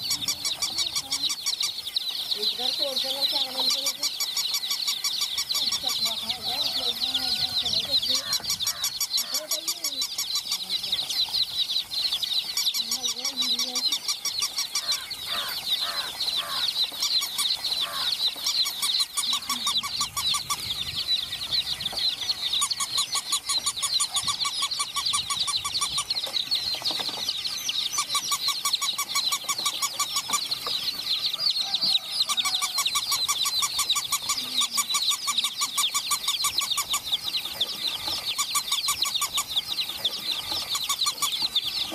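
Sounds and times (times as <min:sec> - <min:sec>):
baby chicks peeping: 0:00.0 - 0:41.9.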